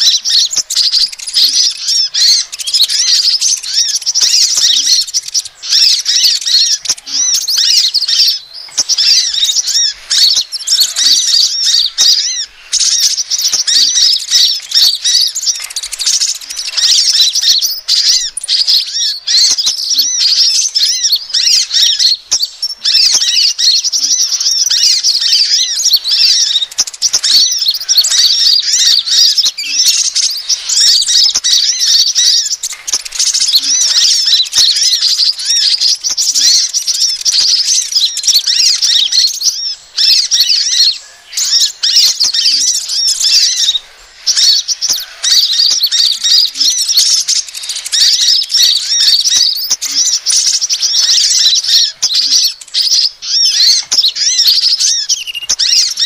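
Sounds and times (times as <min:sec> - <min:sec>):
sunbirds chirping and twittering: 0:00.0 - 0:56.0.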